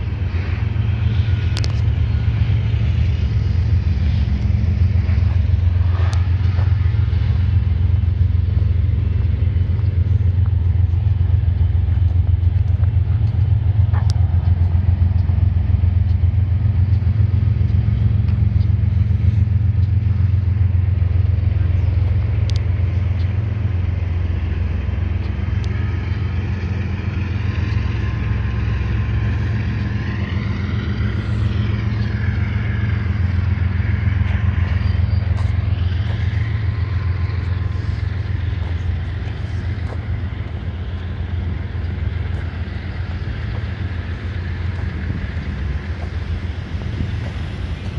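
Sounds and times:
low mechanical rumble: 0.0 - 47.9.

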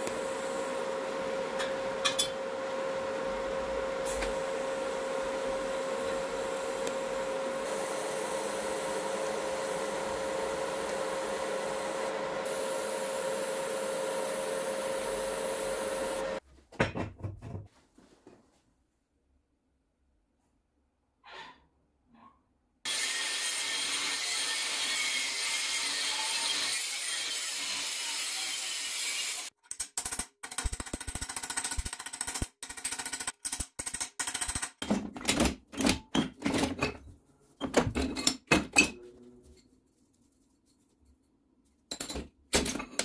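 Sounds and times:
power tool running: 0.0 - 16.4, 22.9 - 29.5.

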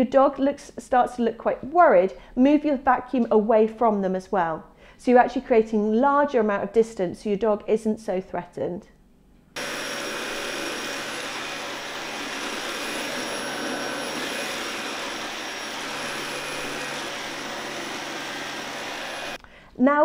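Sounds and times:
vacuum cleaner running: 9.6 - 19.4.

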